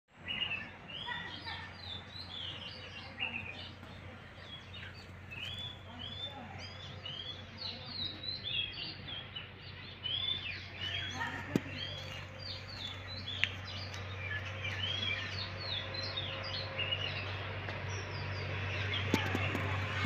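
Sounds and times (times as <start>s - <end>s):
birds chirping: 0.1s - 20.0s.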